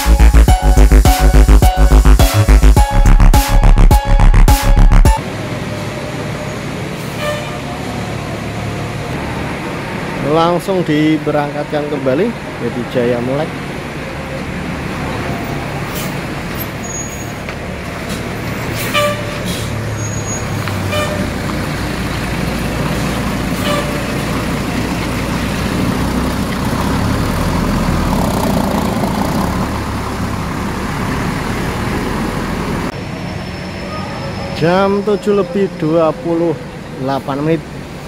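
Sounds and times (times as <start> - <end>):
bus diesel engine rumble: 5.2 - 38.0.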